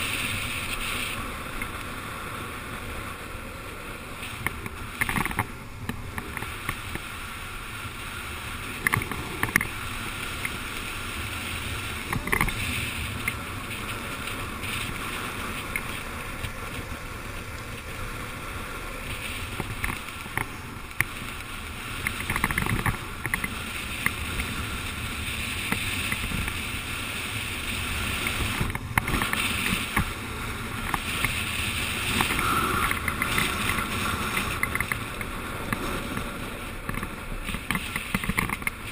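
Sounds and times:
skateboard wheels rolling on asphalt: 0:00.0 - 0:38.9
wind rushing over microphone: 0:00.0 - 0:38.9
short clicks and scrapes: 0:30.8 - 0:38.9.

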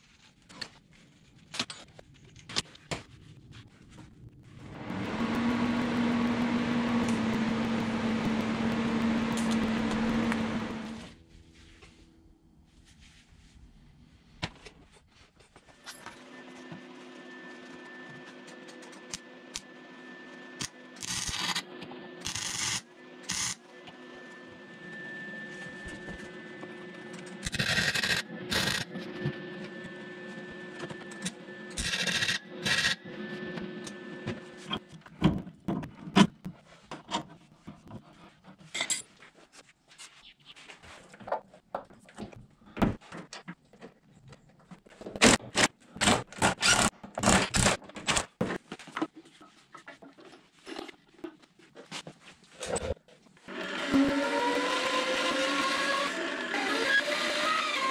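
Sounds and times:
angle grinder running: 0:04.6 - 0:11.2, 0:53.5 - 0:57.9.

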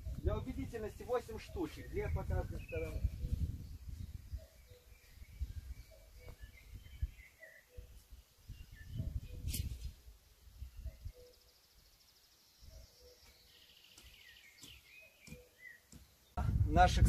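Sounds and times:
bird chirps and trill: 0:00.0 - 0:16.4
low rumbles on microphone: 0:01.9 - 0:04.5, 0:16.4 - 0:17.0.

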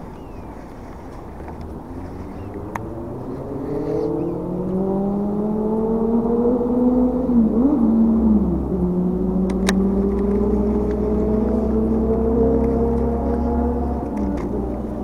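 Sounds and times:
motorboat engine running: 0:07.4 - 0:15.0.

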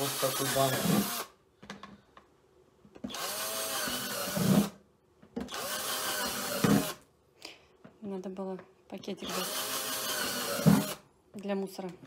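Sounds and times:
cordless drill boring plastic: 0:00.0 - 0:01.4, 0:03.1 - 0:04.8, 0:05.4 - 0:07.0, 0:09.2 - 0:11.0.

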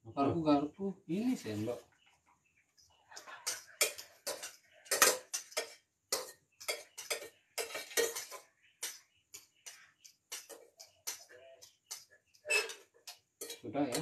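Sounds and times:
metal spoon clinking on a pot: 0:03.1 - 0:14.0.

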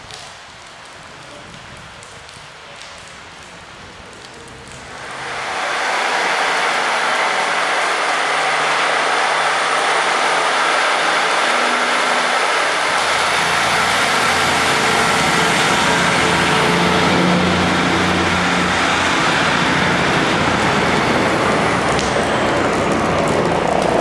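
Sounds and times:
diesel train engines running: 0:04.6 - 0:24.0
steady high whine: 0:04.8 - 0:24.0.

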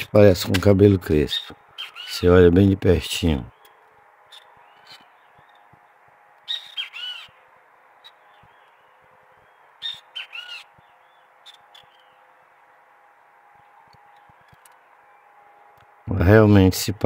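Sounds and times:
faint steady hum: 0:00.0 - 0:17.0
bird chirping: 0:01.1 - 0:12.4, 0:13.1 - 0:15.8.

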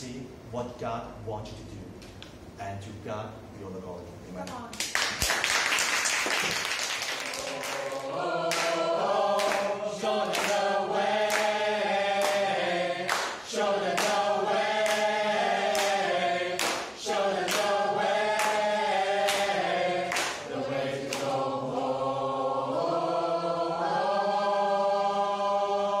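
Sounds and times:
choir singing in harmony: 0:07.1 - 0:26.0.

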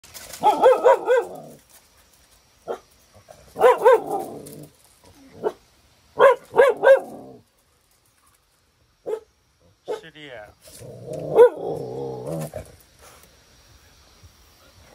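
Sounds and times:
dog barking: 0:00.4 - 0:01.4, 0:03.6 - 0:04.3, 0:06.2 - 0:07.1, 0:09.0 - 0:09.3, 0:09.9 - 0:10.1, 0:11.3 - 0:11.8.

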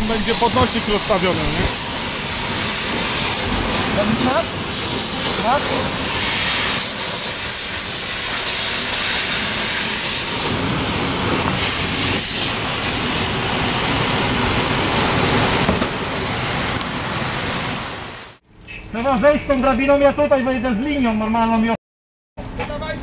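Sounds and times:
fire hose spraying water: 0:00.0 - 0:20.3.

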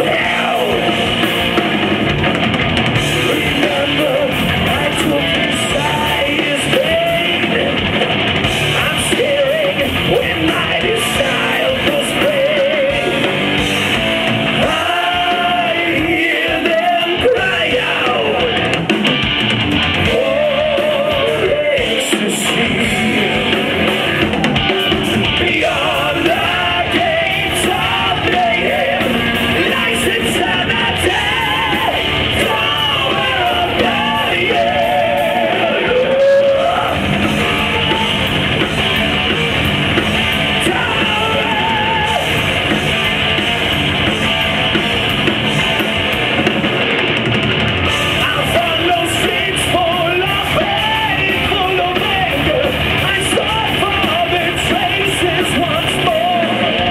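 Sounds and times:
man singing with vibrato: 0:00.0 - 0:01.3, 0:03.0 - 0:07.9, 0:08.6 - 0:13.5, 0:14.5 - 0:18.8, 0:20.0 - 0:38.2, 0:40.5 - 0:42.4, 0:47.9 - 0:56.9
heavy metal band playing live: 0:00.0 - 0:56.9.

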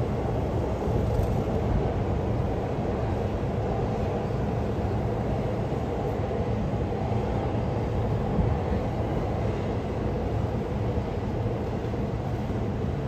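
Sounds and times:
train rumbling on rails: 0:00.0 - 0:13.0.

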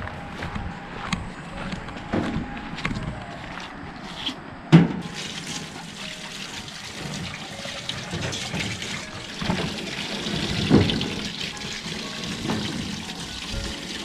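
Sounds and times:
water running into steel sink: 0:05.0 - 0:14.0.

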